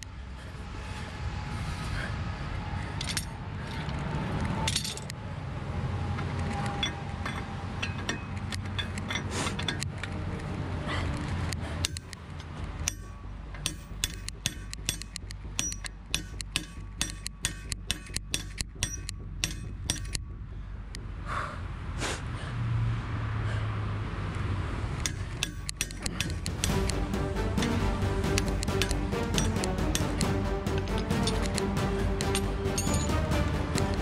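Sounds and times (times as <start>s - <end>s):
hammer striking metal bar: 6.7s - 9.9s, 11.8s - 12.2s, 12.8s - 20.3s, 25.0s - 34.0s.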